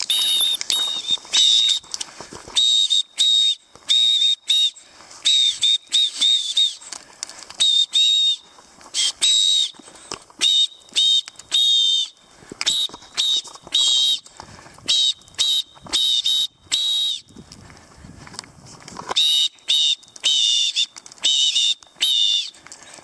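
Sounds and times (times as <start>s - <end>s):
shrill whistle blasts: 0.1s - 1.9s, 2.5s - 6.9s, 7.6s - 9.8s, 10.4s - 14.2s, 14.8s - 17.4s, 19.2s - 22.6s.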